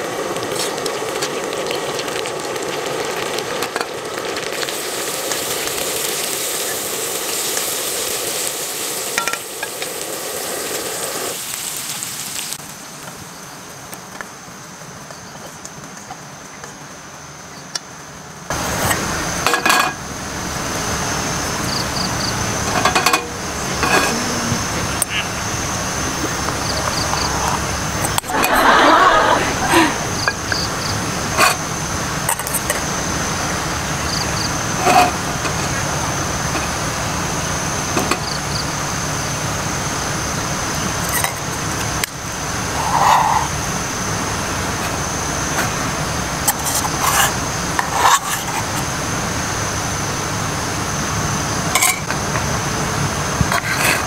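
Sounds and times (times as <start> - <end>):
high insect drone: 0.0 - 54.0
outdoor rumble and hiss: 0.0 - 54.0
metal spoon scraping cookware: 22.7 - 24.2.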